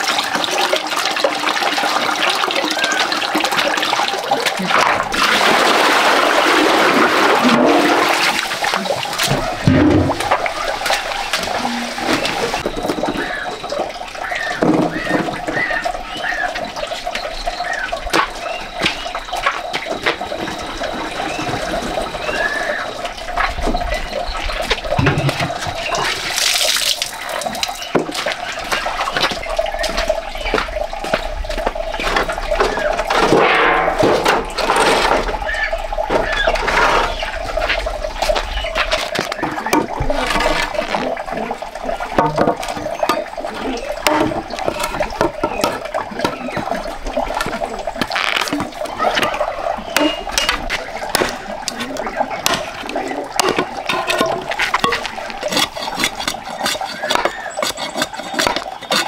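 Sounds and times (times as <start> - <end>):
water splashing on concrete: 0.0 - 59.0.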